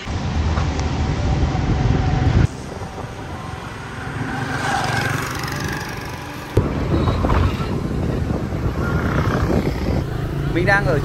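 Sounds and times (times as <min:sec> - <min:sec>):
road traffic: 0:00.0 - 0:11.0
wind rumbling on microphone: 0:00.0 - 0:11.0
motorbike engine: 0:02.5 - 0:11.0.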